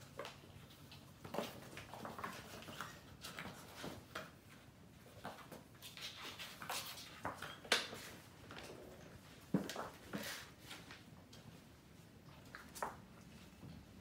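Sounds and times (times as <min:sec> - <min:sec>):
kittens scampering on hard floor: 0:00.0 - 0:11.6.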